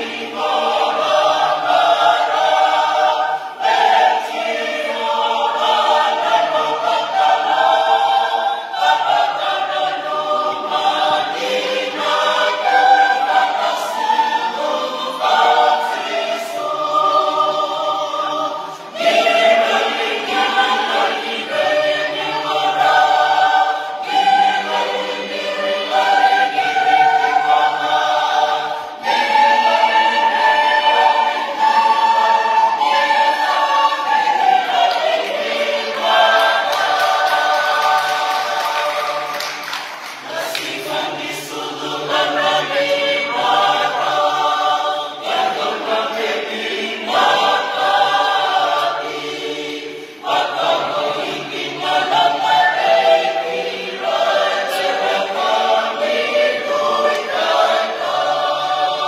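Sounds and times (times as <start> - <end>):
choir singing a hymn: 0.0 - 59.0.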